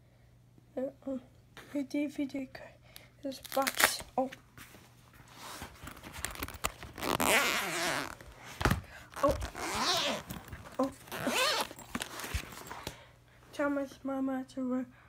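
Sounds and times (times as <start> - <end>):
zipper scraping open: 5.5 - 8.2, 9.1 - 12.8.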